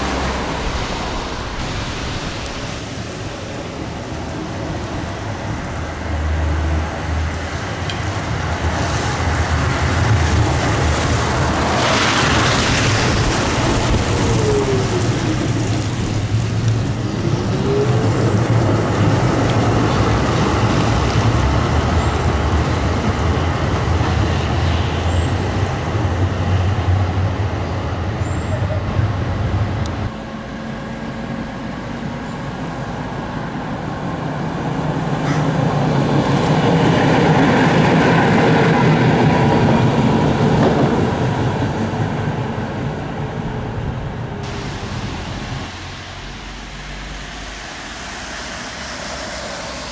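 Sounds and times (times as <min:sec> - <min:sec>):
tram running: 0:00.0 - 0:49.9.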